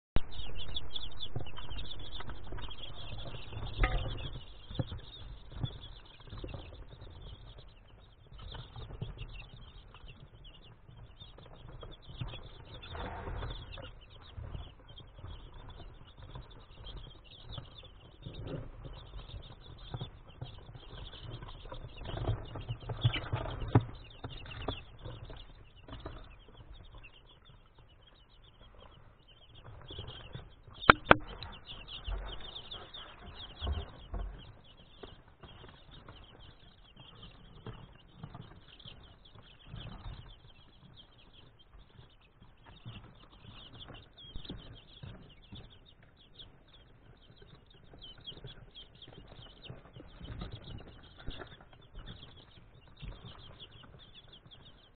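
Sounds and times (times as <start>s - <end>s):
low bumps: 0.2s - 10.5s
chicks peeping: 0.2s - 54.9s
sharp knocks: 30.8s - 32.8s.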